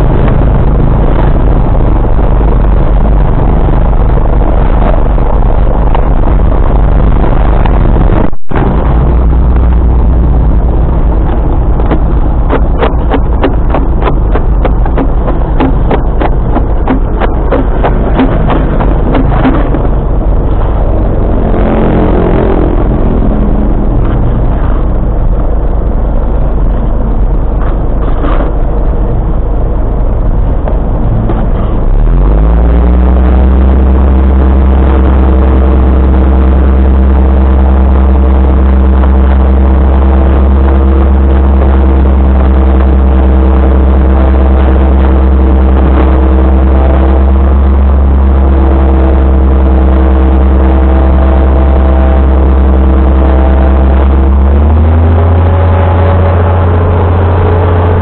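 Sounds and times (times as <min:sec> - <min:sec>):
engine starting and running: 0:00.0 - 0:58.0
loud low rumble: 0:00.0 - 0:58.0
knocks: 0:11.8 - 0:20.0.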